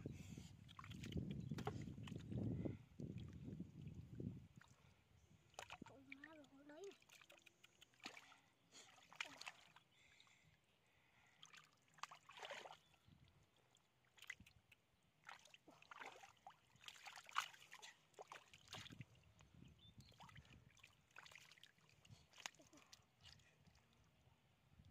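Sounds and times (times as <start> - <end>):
hands splashing in muddy water: 5.5 - 9.9, 11.4 - 13.0, 14.1 - 19.2, 20.1 - 23.8.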